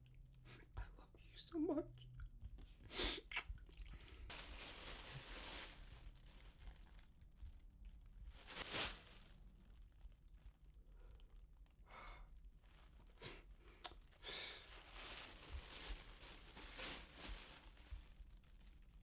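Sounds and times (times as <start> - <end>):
thin sheeting tearing and crinkling: 4.3 - 7.1, 8.3 - 10.5, 14.0 - 19.0.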